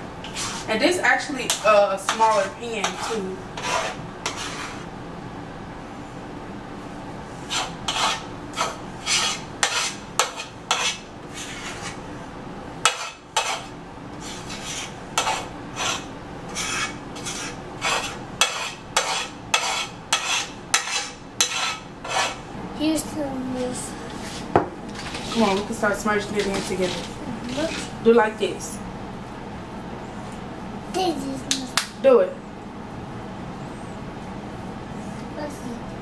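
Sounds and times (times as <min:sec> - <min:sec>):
utensil scraping sticky dough: 0:00.2 - 0:04.9, 0:07.4 - 0:12.1, 0:12.8 - 0:22.5, 0:24.2 - 0:28.0.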